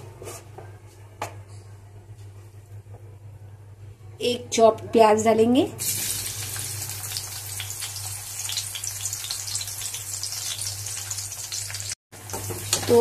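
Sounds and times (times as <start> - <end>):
onions sizzling in hot oil: 5.8 - 13.0.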